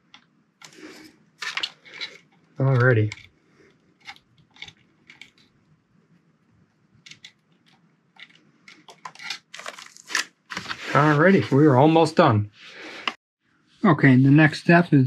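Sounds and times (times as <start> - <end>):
plastic parts clicking and tapping: 1.4 - 5.6, 7.0 - 10.0.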